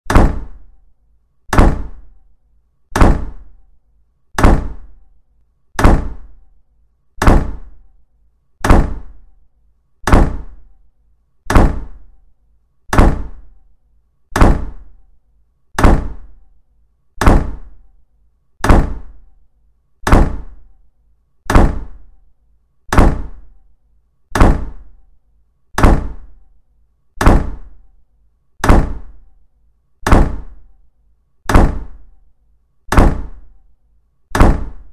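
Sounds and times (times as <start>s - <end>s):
loud thud: 0.0s - 0.6s, 1.5s - 2.1s, 2.9s - 3.6s, 4.4s - 5.0s, 5.8s - 6.4s, 7.2s - 7.8s, 8.6s - 9.2s, 10.0s - 10.6s, 11.5s - 12.0s, 12.9s - 13.5s, 14.3s - 14.9s, 15.8s - 16.3s, 17.2s - 17.8s, 18.6s - 19.2s, 20.0s - 20.6s, 21.5s - 22.0s, 22.9s - 23.4s, 24.3s - 24.8s, 25.8s - 26.3s, 27.2s - 27.8s, 28.6s - 29.2s, 30.0s - 30.6s, 31.5s - 32.0s, 32.9s - 33.4s, 34.3s - 34.9s.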